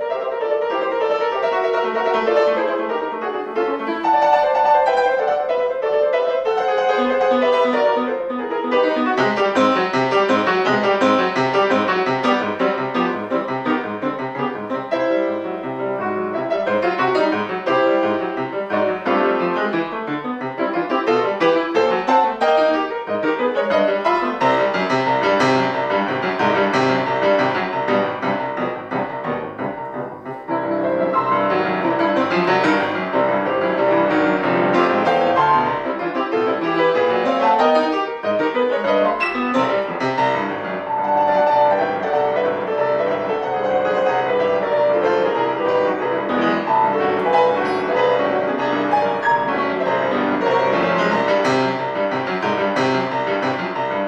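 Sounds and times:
classical piano piece: 0:00.0 - 0:54.0.

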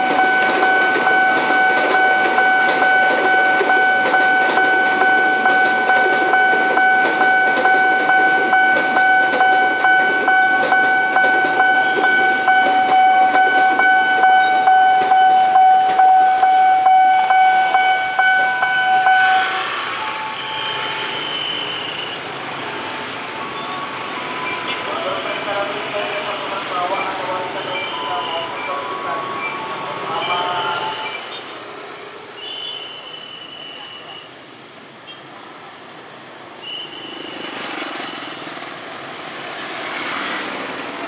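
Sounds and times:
train wheels clicking over rail joints: 0:00.0 - 0:16.9
crossing warning alarm tone: 0:00.0 - 0:31.5
road traffic: 0:00.0 - 0:41.0.

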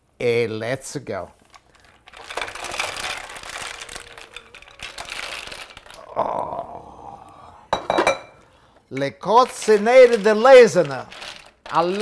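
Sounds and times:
mussel shells clattering in a pan: 0:01.6 - 0:06.0, 0:09.3 - 0:12.0.

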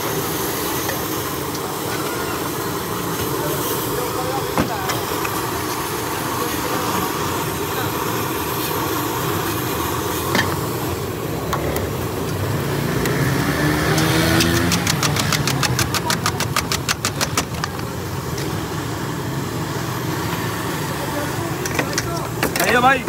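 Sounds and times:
steady background noise: 0:00.0 - 0:23.0
small engine revving: 0:12.5 - 0:17.0
rapid clicks: 0:14.4 - 0:17.7.

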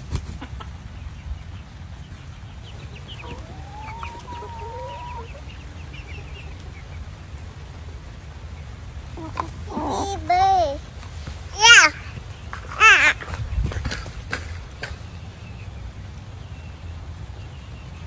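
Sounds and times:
chickens clucking: 0:00.0 - 0:16.2
chicken drawn-out call: 0:03.0 - 0:06.9.

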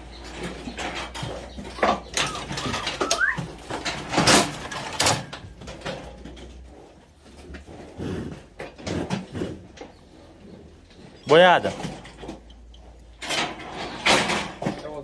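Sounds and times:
knocks and clatter of cattle chute: 0:00.0 - 0:10.0, 0:11.1 - 0:15.0
short squeaks: 0:00.5 - 0:03.6.

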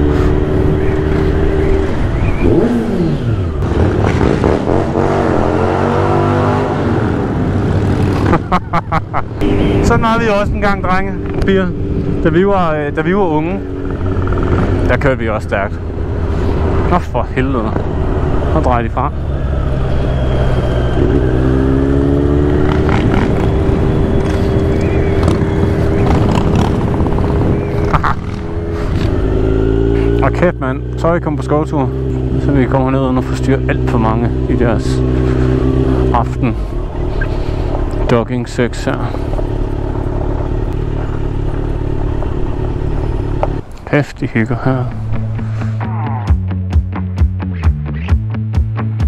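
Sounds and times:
motorcycle engine revving: 0:00.0 - 0:43.7
wind and road noise: 0:00.0 - 0:47.7
wind noise: 0:15.8 - 0:30.2.

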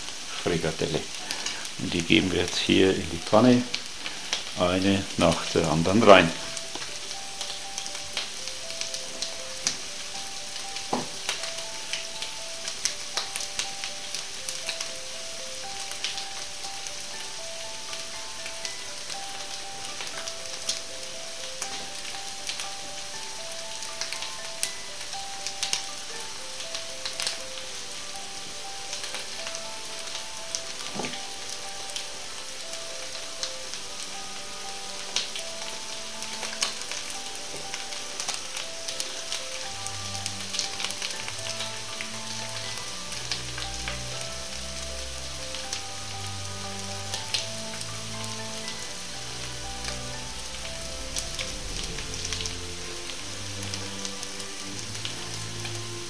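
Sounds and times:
faint melody: 0:00.0 - 0:56.0
meat sizzling in oil: 0:00.0 - 0:56.0.

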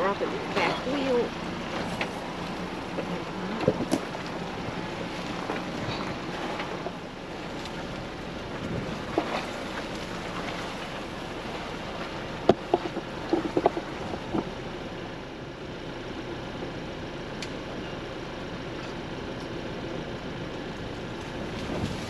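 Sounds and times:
vehicle rumble: 0:00.0 - 0:22.0
wind-like noise: 0:00.0 - 0:22.0
truck knocks and clunks: 0:00.6 - 0:14.8.

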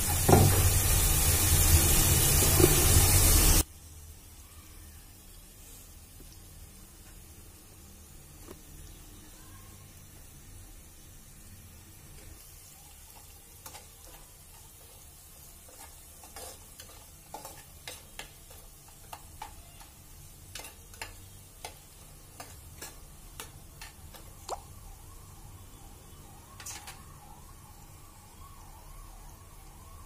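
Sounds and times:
onions sizzling in oil: 0:00.0 - 0:30.0
metal spoon scraping a pot: 0:15.7 - 0:19.5.

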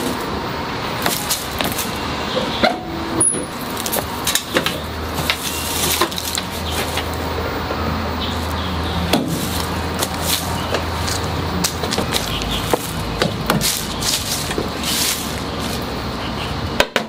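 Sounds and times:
steady low hum: 0:00.0 - 0:16.9
hands knocking on metal van body: 0:11.6 - 0:13.8.

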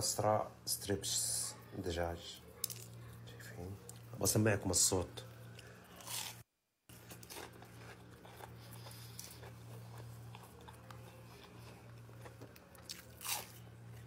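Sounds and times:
fried breading crunching and crackling: 0:06.0 - 0:13.7.

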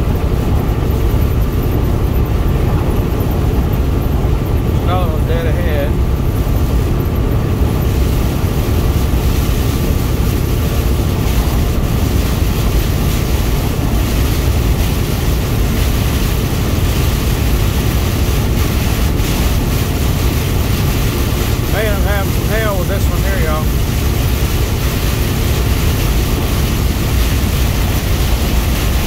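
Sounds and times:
heavy rain on vehicle: 0:00.0 - 0:29.0
road and wind noise: 0:00.0 - 0:29.0.

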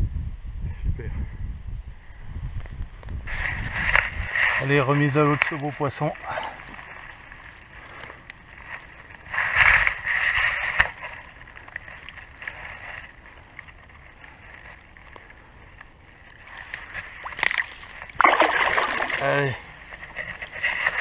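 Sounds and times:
fish splashing in shallow water: 0:16.2 - 0:21.0.

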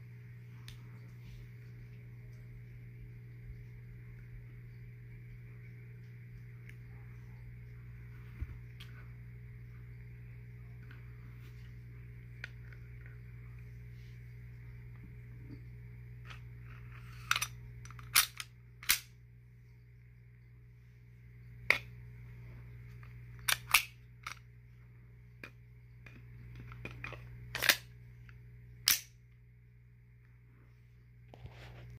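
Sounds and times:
low hum: 0:00.0 - 0:31.9
pistol slide metallic clicks: 0:28.9 - 0:29.1.

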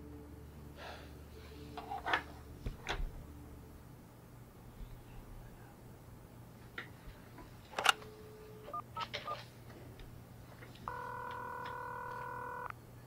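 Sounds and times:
short low dial tone: 0:10.9 - 0:12.7
steady electronic ringing tone: 0:10.9 - 0:12.7.

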